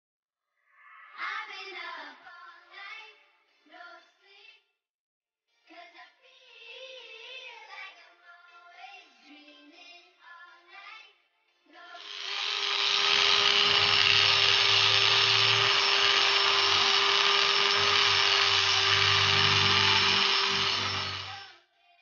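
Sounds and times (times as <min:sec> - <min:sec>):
rotary tool grinding whine: 0:12.0 - 0:21.5.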